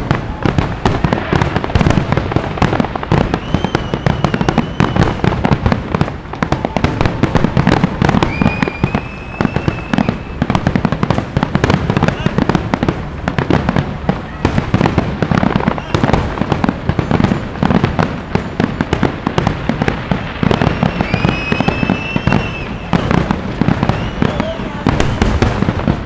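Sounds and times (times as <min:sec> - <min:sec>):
fireworks bursts and crackles: 0:00.0 - 0:26.0
fireworks whistling tones: 0:00.0 - 0:26.0.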